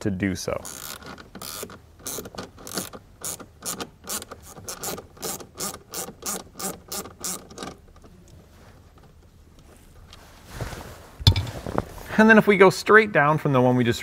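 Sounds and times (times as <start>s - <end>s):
ratchet wrench clicking: 0.7s - 7.5s.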